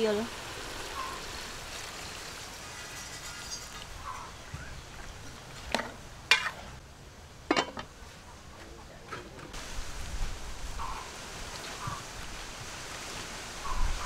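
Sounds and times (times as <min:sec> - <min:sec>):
pot lid clanking on pot: 0:07.5 - 0:07.9.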